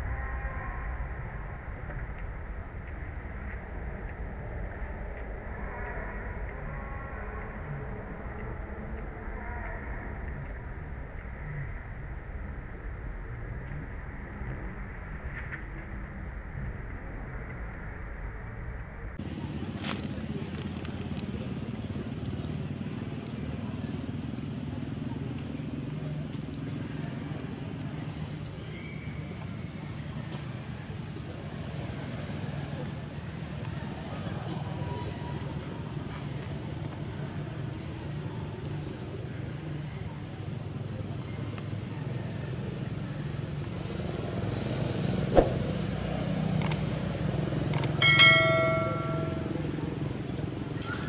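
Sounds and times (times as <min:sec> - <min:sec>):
passing vehicle hum: 0:43.4 - 0:50.8
sharp click: 0:46.6 - 0:46.8
light clicks and bell chime: 0:47.8 - 0:49.7.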